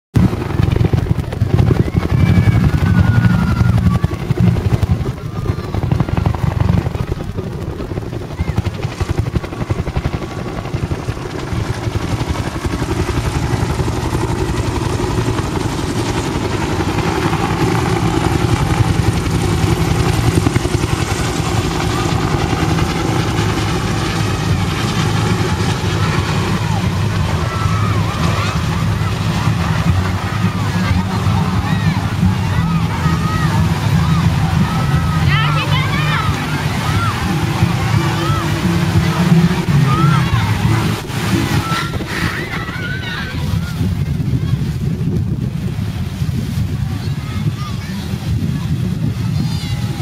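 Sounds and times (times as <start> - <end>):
helicopter rotor beating: 0.1 - 50.0.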